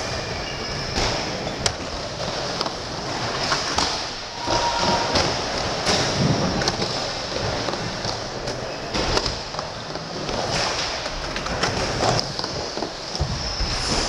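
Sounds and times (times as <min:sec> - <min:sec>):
skate wheels rolling on ramp: 0:00.0 - 0:14.0.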